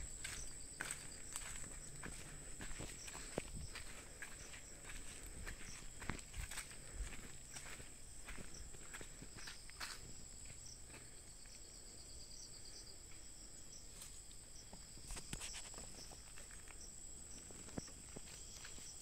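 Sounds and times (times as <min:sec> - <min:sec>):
footsteps on forest floor: 0:00.0 - 0:11.6, 0:13.9 - 0:19.0
night insects chirring: 0:00.0 - 0:19.0
rustles on forest floor: 0:13.8 - 0:19.0.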